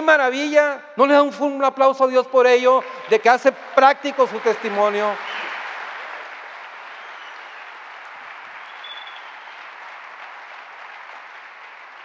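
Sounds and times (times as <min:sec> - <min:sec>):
congregation applauding: 0:02.6 - 0:12.0.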